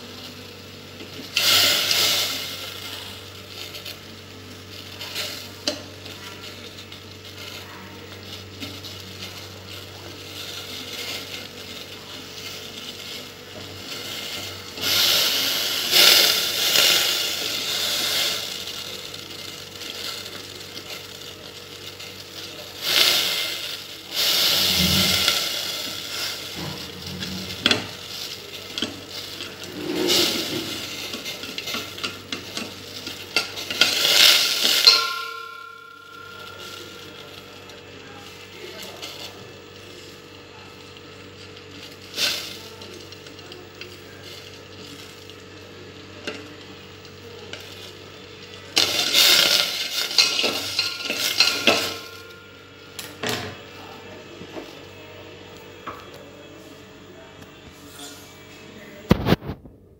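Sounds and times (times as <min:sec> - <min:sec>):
slate pieces clattering in steel bowl: 0:48.8 - 0:52.4.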